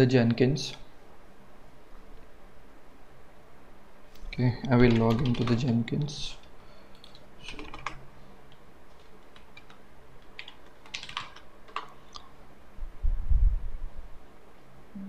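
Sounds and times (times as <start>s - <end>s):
keyboard keys clicking: 4.8s - 5.7s, 7.0s - 8.0s, 9.0s - 12.3s
low muffled rumble: 12.8s - 14.2s.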